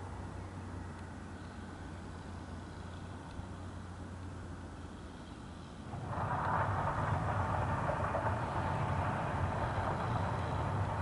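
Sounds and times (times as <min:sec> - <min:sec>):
jet engines roaring: 0:05.8 - 0:11.0.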